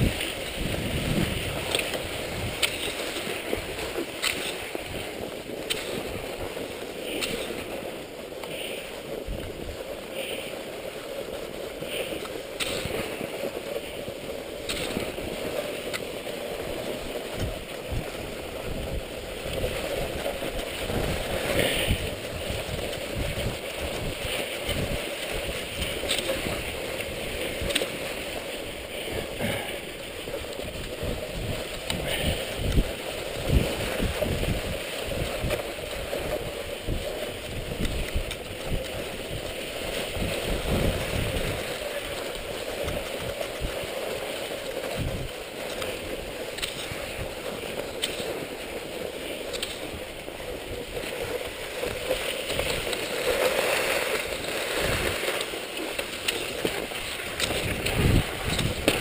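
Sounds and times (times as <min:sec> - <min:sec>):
ski bumps: 0:00.0 - 0:59.0
skis scraping over snow: 0:00.0 - 0:59.0
wind rumbling on microphone: 0:00.0 - 0:59.0.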